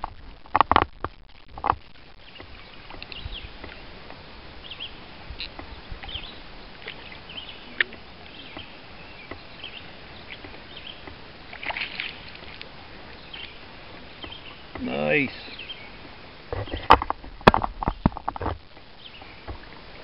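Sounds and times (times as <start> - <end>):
water lapping: 0.0 - 20.0
landing net splashing into water: 11.1 - 12.7.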